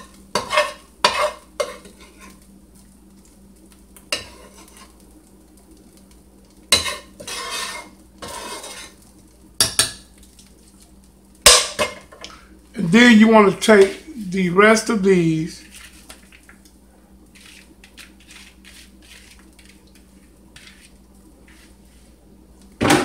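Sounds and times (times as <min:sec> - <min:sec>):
metal spoon scraping frying pan: 0:00.0 - 0:02.4, 0:04.1 - 0:04.9, 0:06.7 - 0:09.0.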